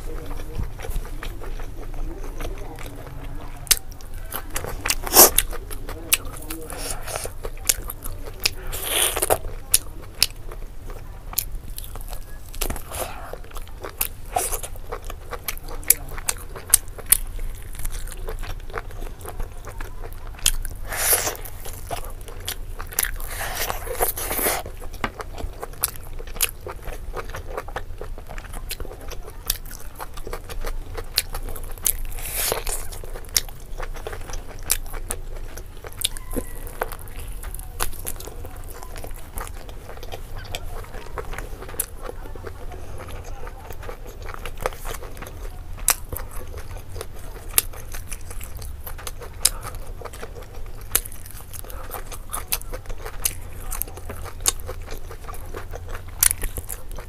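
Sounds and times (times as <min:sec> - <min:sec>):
chewing with wet mouth clicks: 0:00.0 - 0:57.0
biting and sucking: 0:04.8 - 0:05.6, 0:20.4 - 0:24.9, 0:31.0 - 0:40.6.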